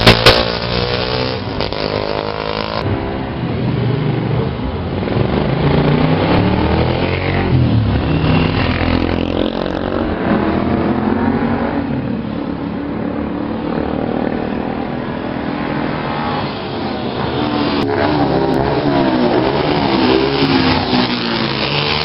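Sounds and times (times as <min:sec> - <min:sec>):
motorcycle engines passing by: 0:00.0 - 0:22.0.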